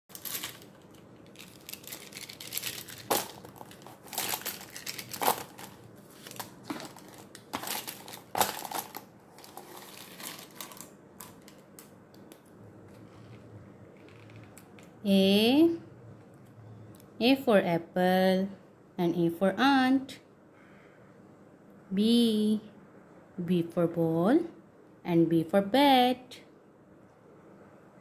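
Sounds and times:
markers clattering on paper: 0.1 - 12.4, 14.0 - 15.0.

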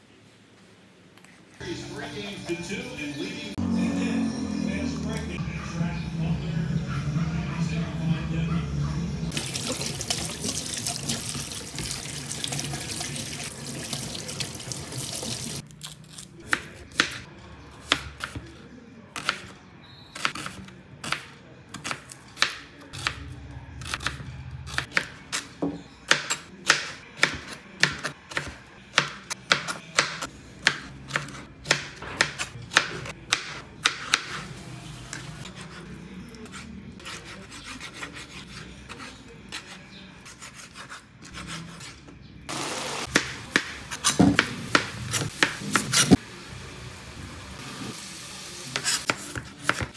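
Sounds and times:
hands washing under tap: 9.4 - 15.6
knife chopping on cutting board: 24.8 - 34.4, 43.1 - 46.2, 48.7 - 49.9.

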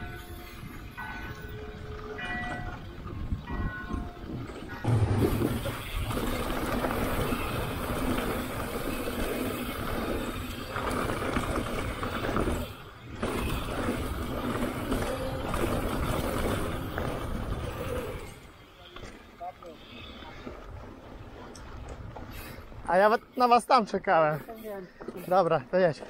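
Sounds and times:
tyres on loose gravel: 0.1 - 26.0
bike rattle: 3.5 - 23.0.

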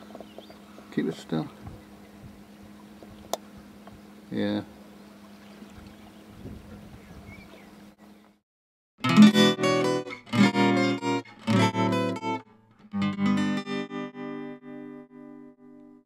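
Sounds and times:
strummed guitar chords: 9.0 - 16.0.

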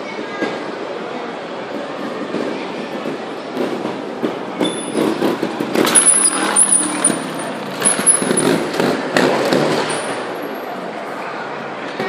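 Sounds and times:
wheels thumping on stone steps: 3.0 - 10.6
motorcycle engine running: 4.7 - 10.5.

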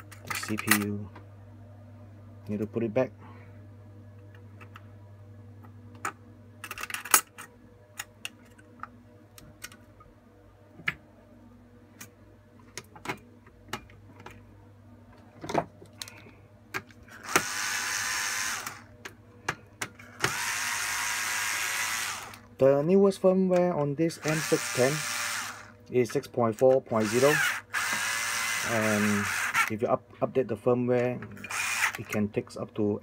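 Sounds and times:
cordless screwdriver running: 17.2 - 18.9, 20.2 - 22.4, 24.2 - 25.8, 27.0 - 29.7, 31.5 - 32.1.

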